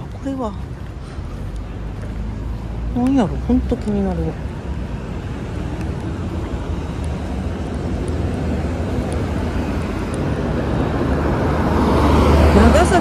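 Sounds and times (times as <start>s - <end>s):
road traffic passing: 0.0s - 13.0s.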